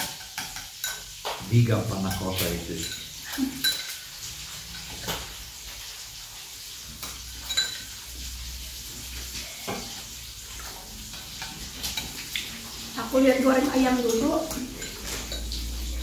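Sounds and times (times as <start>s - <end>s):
spoons scraping ceramic bowls: 0.0s - 5.2s, 6.9s - 8.2s, 13.4s - 16.0s.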